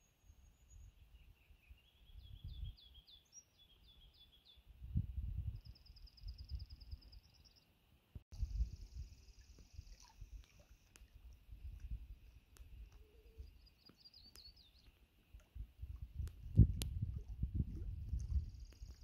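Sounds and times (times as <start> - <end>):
songbirds singing: 0.0 - 4.7, 5.5 - 7.8, 12.6 - 16.4.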